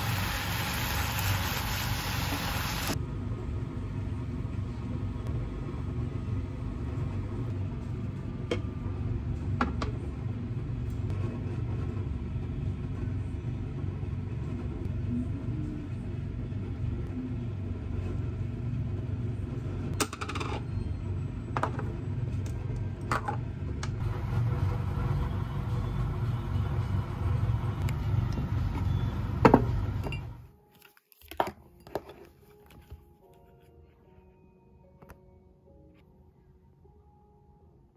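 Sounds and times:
low kitchen hum: 0.0s - 37.9s
utensils and dishes clinking: 30.0s - 32.9s.

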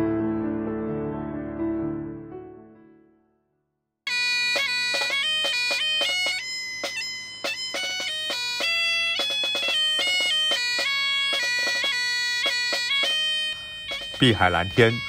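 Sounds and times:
bagpipes playing melody: 4.1s - 15.0s.

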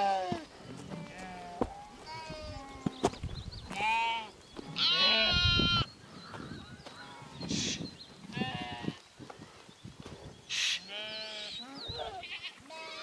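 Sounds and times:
sheep bleating: 3.8s - 5.9s, 10.8s - 13.0s.

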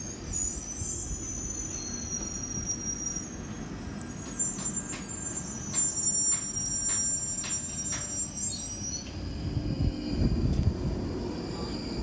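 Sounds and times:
train high-pitched squeal: 0.0s - 12.0s
train low rumble: 0.0s - 12.0s
train wheel clacks: 4.2s - 9.2s.

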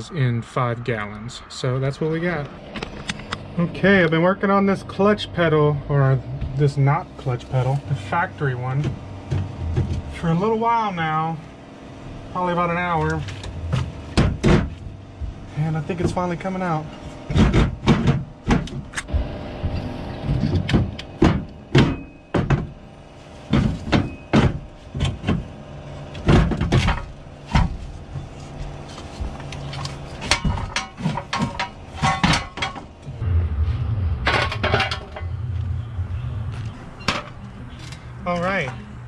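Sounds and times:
low rumble: 0.0s - 15.9s, 33.0s - 38.3s
metal clanks and knocks: 8.6s - 10.3s, 13.1s - 19.0s, 19.7s - 22.8s, 23.5s - 25.5s, 26.2s - 28.3s, 29.7s - 38.0s.

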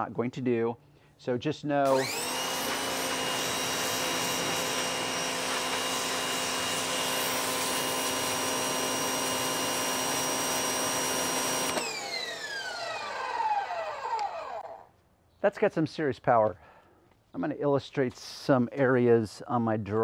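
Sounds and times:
pressure washer motor whine: 1.9s - 14.7s.

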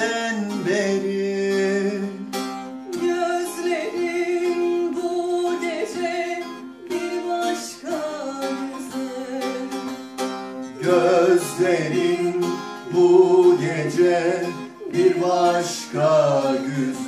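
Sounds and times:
long-necked lute strummed and plucked: 0.0s - 17.0s
woman singing: 2.9s - 10.2s.

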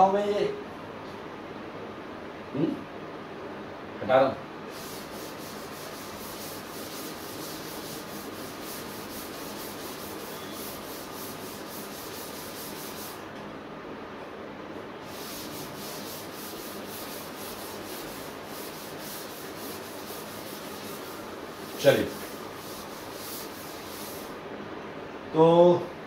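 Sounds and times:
chalkboard being wiped: 4.7s - 13.2s, 15.0s - 24.4s.

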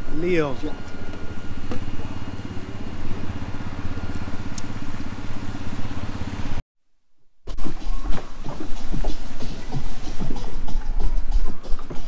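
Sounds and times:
boat engine running: 0.0s - 6.6s
wind and water hiss: 7.5s - 12.0s.

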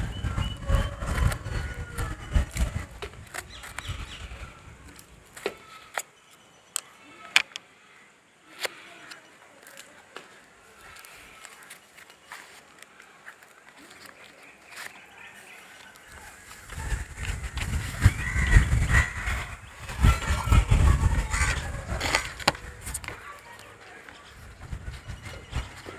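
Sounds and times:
wind buffeting microphone: 0.0s - 5.8s, 16.1s - 25.9s.

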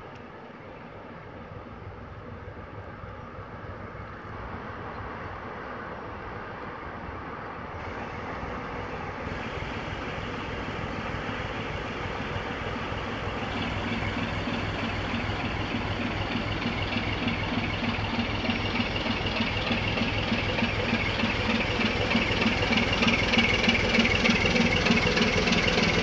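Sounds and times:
ship diesel engine running: 7.8s - 26.0s.

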